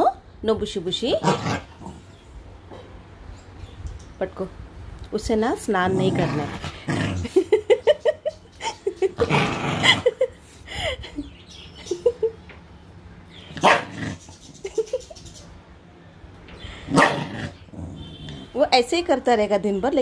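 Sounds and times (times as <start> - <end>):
dog barking outbursts: 13.6 - 14.0, 16.9 - 17.4.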